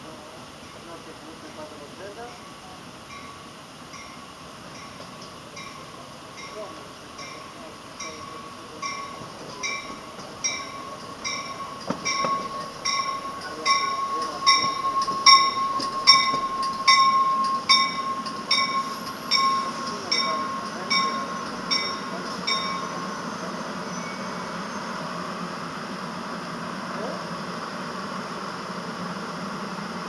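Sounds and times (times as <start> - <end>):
rumble of passing train cars: 0.0 - 30.0
train warning bell ringing: 2.2 - 25.0
steady high squeal: 8.0 - 25.5.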